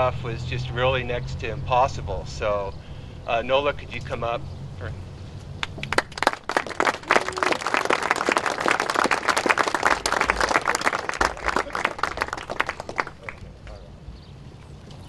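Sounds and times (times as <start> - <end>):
crowd applauding: 5.6 - 13.8.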